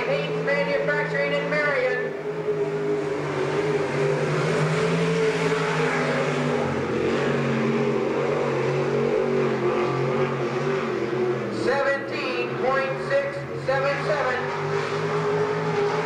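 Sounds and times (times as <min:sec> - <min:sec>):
race car engine running hard: 0:00.0 - 0:16.0.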